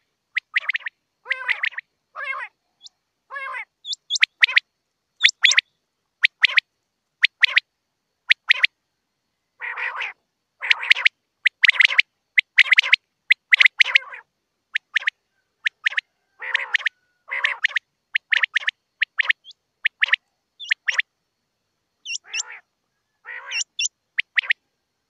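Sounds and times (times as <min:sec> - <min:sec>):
quail calling: 0:00.0 - 0:04.6, 0:05.2 - 0:06.6, 0:07.2 - 0:07.6, 0:08.3 - 0:08.7, 0:09.6 - 0:21.1, 0:22.0 - 0:24.6
rasping quail call: 0:00.0 - 0:04.6, 0:09.6 - 0:21.0, 0:22.0 - 0:24.6.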